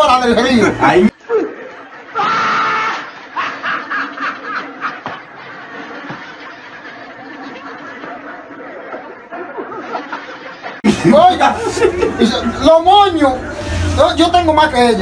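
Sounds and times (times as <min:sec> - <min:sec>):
tv comedy laughter: 0:01.1 - 0:14.0.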